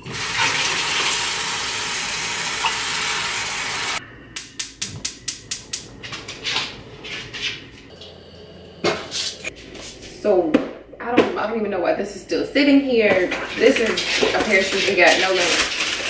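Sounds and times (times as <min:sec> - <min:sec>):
faucet water running into metal pot: 0:00.0 - 0:04.0.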